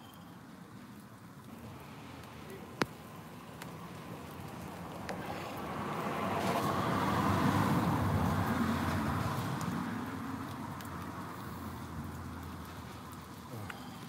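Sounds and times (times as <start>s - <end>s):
road vehicle driving past: 1.5s - 14.0s.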